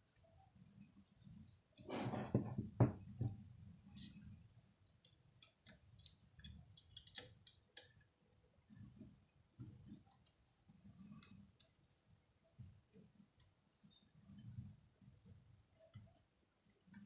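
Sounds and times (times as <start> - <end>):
tweezers clicking and tapping: 5.0 - 8.0.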